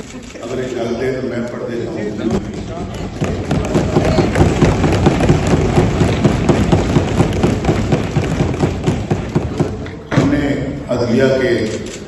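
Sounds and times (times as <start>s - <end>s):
people thumping desks: 2.2s - 10.6s.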